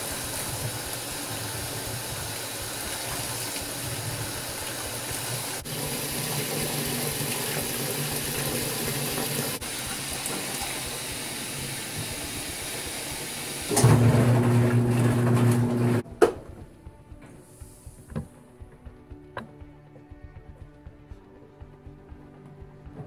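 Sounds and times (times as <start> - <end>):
washing machine filling with water: 0.0 - 16.0
low motor hum: 13.8 - 16.0.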